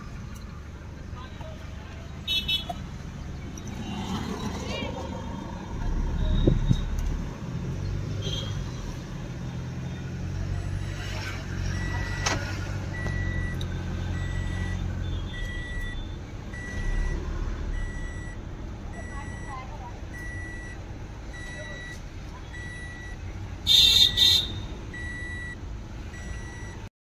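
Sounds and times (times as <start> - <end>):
car engine and road noise: 0.0 - 26.9
high electronic beep: 14.2 - 17.2, 17.8 - 18.4.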